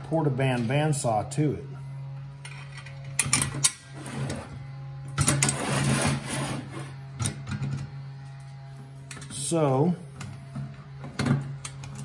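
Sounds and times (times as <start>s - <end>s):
low background hum: 0.0s - 12.0s
metal clanks and scrapes: 2.4s - 4.6s, 5.2s - 7.9s.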